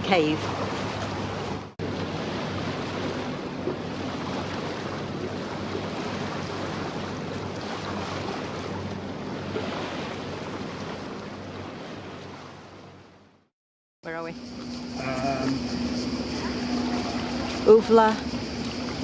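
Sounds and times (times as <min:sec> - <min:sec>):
water rushing: 0:00.0 - 0:13.3, 0:14.4 - 0:19.0
low even hum: 0:14.0 - 0:19.0.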